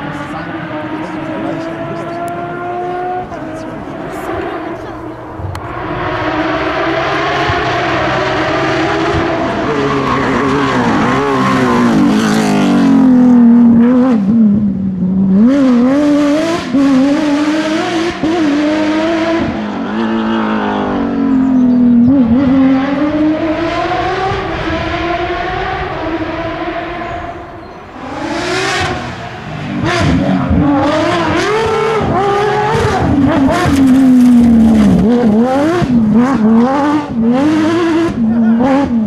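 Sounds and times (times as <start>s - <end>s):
racing car engine: 0.0s - 39.0s.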